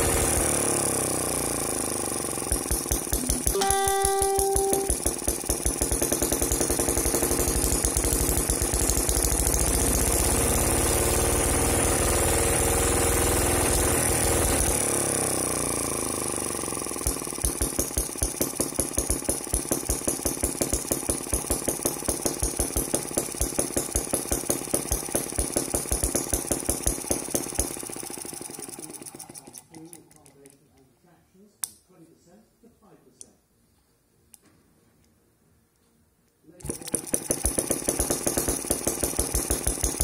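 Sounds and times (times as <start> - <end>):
small petrol engine running: 0.0 - 30.2, 36.6 - 40.0.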